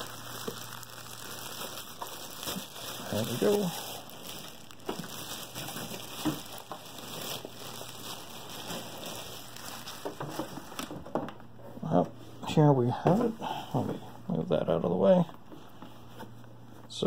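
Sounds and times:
cardboard packing shuffling: 0:00.0 - 0:11.2
plastic bag crinkling: 0:00.0 - 0:11.2.

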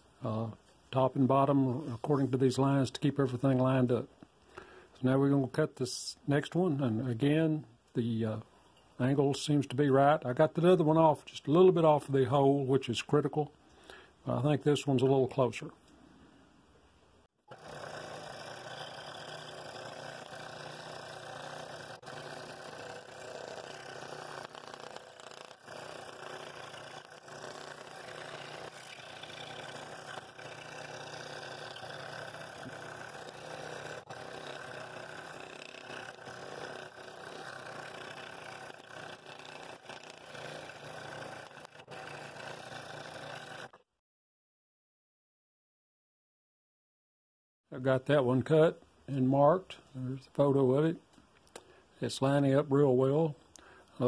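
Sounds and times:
scroll saw cutting wood: 0:17.5 - 0:43.9.

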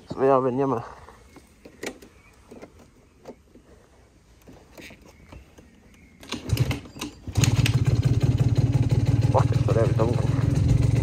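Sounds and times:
moped scooter engine starting: 0:06.2 - 0:11.0.

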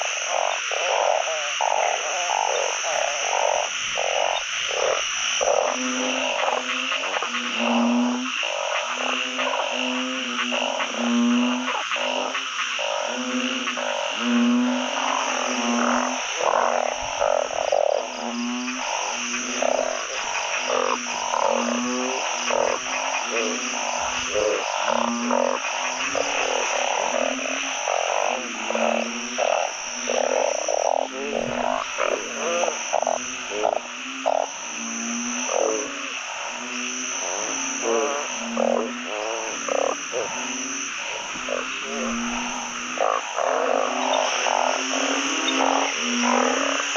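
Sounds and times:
frogs croaking in chorus: 0:00.0 - 0:46.9.

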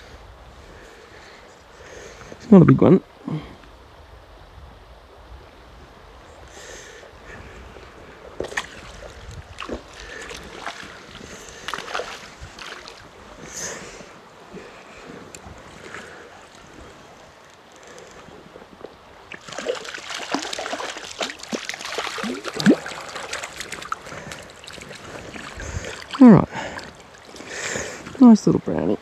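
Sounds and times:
river water rushing: 0:07.1 - 0:29.0
fish splashing at the surface: 0:08.4 - 0:13.1, 0:19.3 - 0:27.9.

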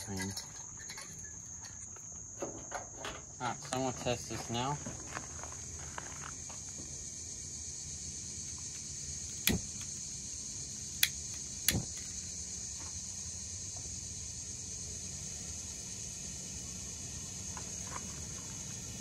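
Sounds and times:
insects chirring: 0:00.0 - 0:19.0
lighter sparking clicks: 0:08.7 - 0:10.0, 0:11.0 - 0:12.2.

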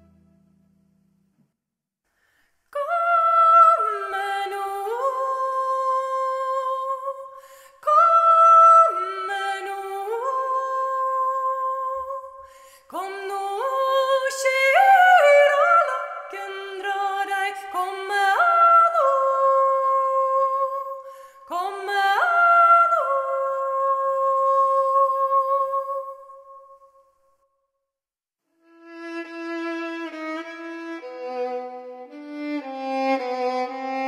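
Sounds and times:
woman singing unaccompanied: 0:02.8 - 0:26.5.

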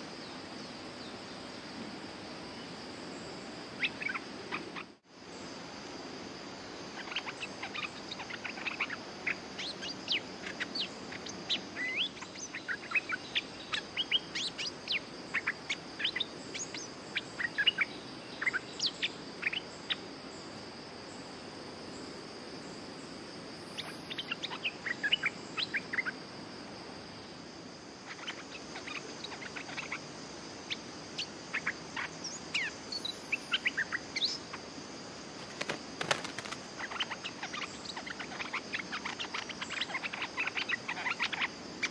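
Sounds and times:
high-pitched insect drone: 0:00.0 - 0:41.9
birds chirping: 0:03.8 - 0:04.9, 0:07.0 - 0:20.0, 0:28.1 - 0:34.6, 0:35.4 - 0:41.9.

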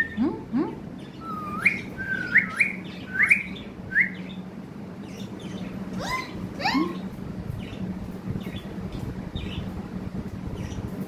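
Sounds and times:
low hum: 0:00.0 - 0:11.0
parrot whistled chirps: 0:01.2 - 0:04.3, 0:06.0 - 0:07.0.

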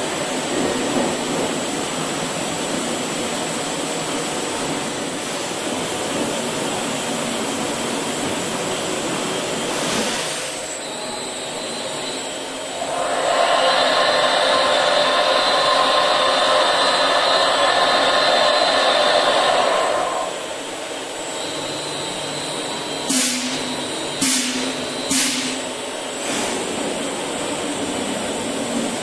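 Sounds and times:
machine whine: 0:10.6 - 0:26.1.

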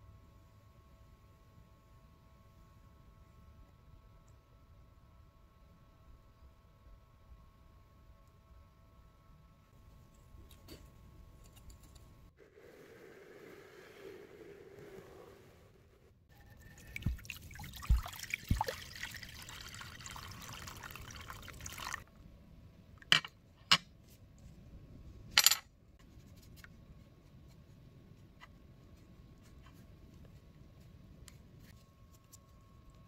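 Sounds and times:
water pouring into glass dish: 0:16.5 - 0:22.0
brush scrubbing in water: 0:16.7 - 0:22.0.

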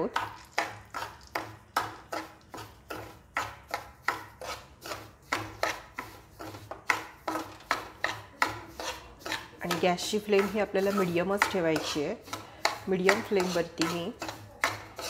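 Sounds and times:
spoon scraping a pan: 0:00.0 - 0:15.0.

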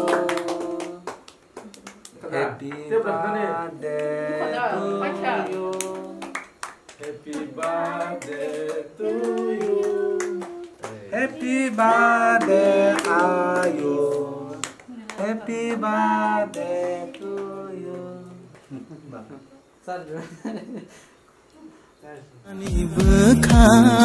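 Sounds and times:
people singing together: 0:00.0 - 0:01.2, 0:02.2 - 0:18.7
hand clapping: 0:00.0 - 0:02.9, 0:05.5 - 0:11.6, 0:12.4 - 0:13.9.

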